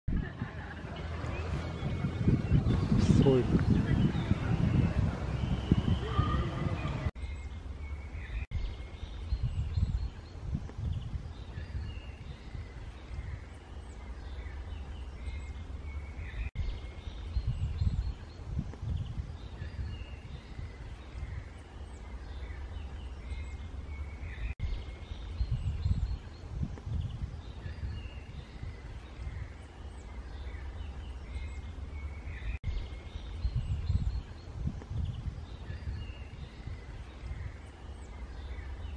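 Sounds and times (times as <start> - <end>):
low outdoor rumble: 0.1 - 11.4
small birds chirping: 0.2 - 38.9.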